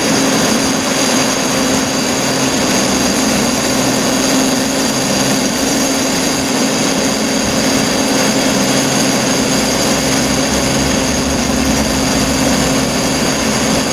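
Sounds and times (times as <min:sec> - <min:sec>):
cable whirring over pulleys: 0:00.0 - 0:13.9
high whining tones: 0:07.5 - 0:13.9.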